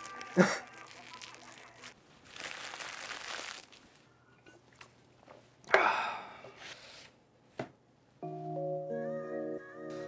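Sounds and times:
food crunching while eating: 0:00.0 - 0:03.9
plastic wrapper crinkling: 0:00.0 - 0:04.1.

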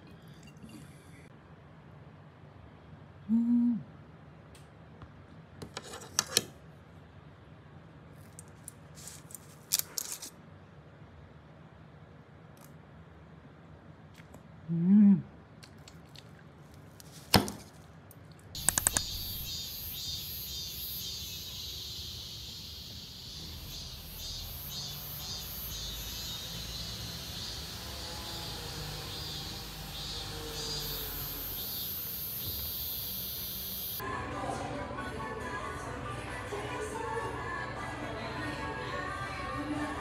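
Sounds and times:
quick clicks: 0:18.6 - 0:19.5
cicadas buzzing: 0:18.6 - 0:34.0.

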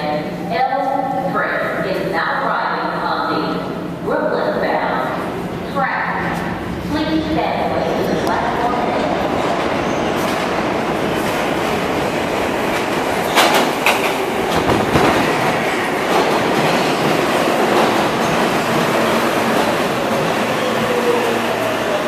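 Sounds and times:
subway train rumbling past: 0:00.0 - 0:22.0
wheels clacking over rail joints: 0:12.7 - 0:17.1.

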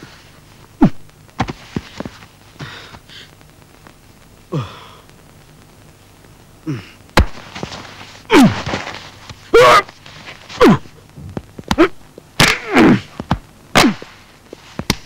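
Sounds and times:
man grunting with effort: 0:04.5 - 0:05.0, 0:06.6 - 0:07.0, 0:08.3 - 0:08.6, 0:10.6 - 0:10.9.

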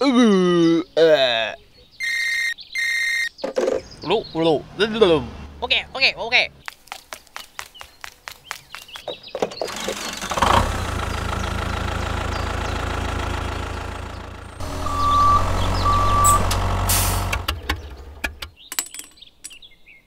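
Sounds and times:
tractor engine running: 0:09.2 - 0:18.6
reversing beeper: 0:14.6 - 0:17.4.

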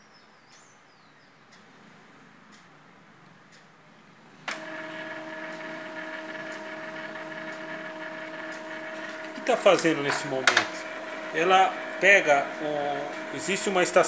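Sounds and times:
printer mechanism click: 0:04.5 - 0:14.0
printer motor hum: 0:04.5 - 0:14.0.

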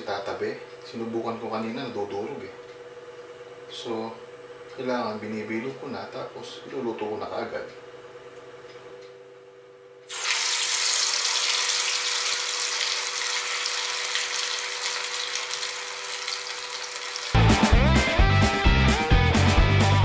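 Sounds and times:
meatball sizzling in hot oil: 0:10.1 - 0:17.4
guitar music: 0:17.3 - 0:20.0.

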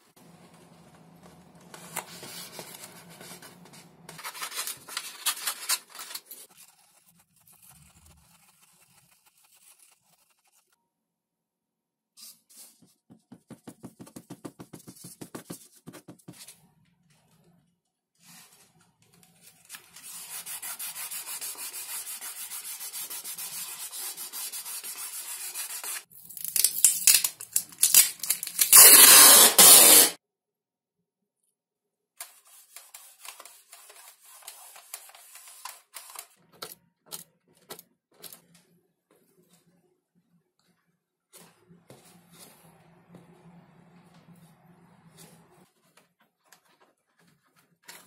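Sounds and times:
plastic tape crackling: 0:26.2 - 0:30.0
packing tape ripping off roll: 0:26.2 - 0:30.2.

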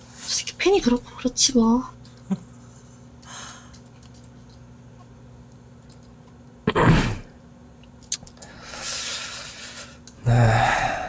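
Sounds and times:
low steady hum: 0:00.0 - 0:11.0
person breathing out hard: 0:08.7 - 0:11.0.

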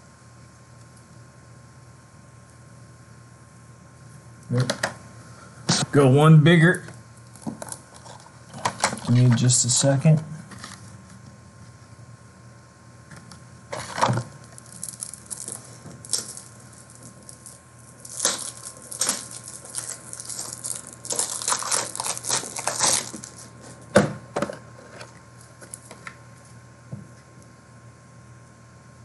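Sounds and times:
plastic packaging crinkling: 0:07.2 - 0:09.2, 0:13.7 - 0:23.9.

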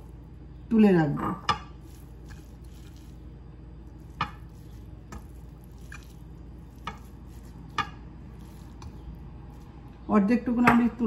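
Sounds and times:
low room hum: 0:00.0 - 0:11.0
hands scooping cheese curd: 0:01.5 - 0:09.8
light taps on plate: 0:06.8 - 0:07.1.

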